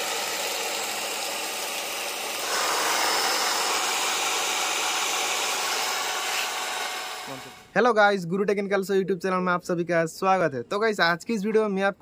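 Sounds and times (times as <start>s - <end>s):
cordless drill whirring: 0.0s - 7.7s.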